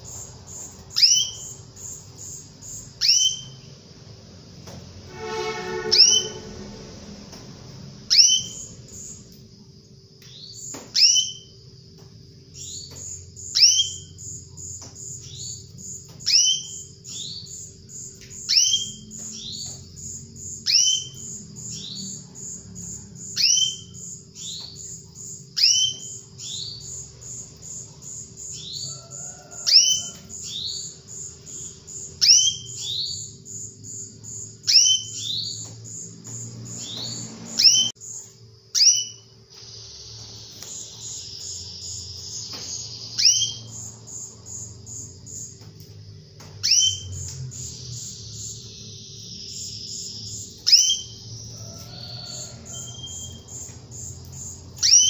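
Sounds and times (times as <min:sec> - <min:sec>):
fast high twitter: 0:05.1 - 0:06.8
canary call notes: 0:05.1 - 0:07.1, 0:54.8 - 0:55.0.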